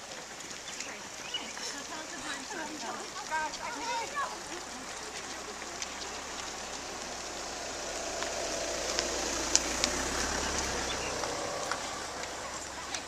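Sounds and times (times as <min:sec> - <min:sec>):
runners' footsteps on wet asphalt: 0:00.0 - 0:13.0.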